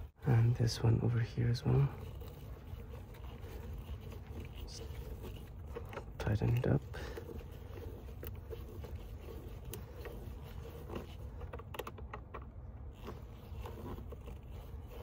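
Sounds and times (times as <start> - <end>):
plastic clicks and knocks: 11.3 - 12.6.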